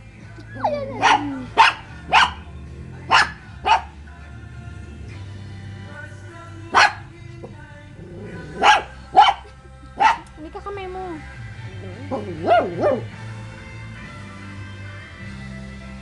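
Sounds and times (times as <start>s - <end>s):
background music: 0.0s - 16.0s
dog barking: 0.7s - 2.5s, 3.1s - 4.0s, 6.7s - 7.1s, 8.5s - 10.3s, 12.2s - 13.2s.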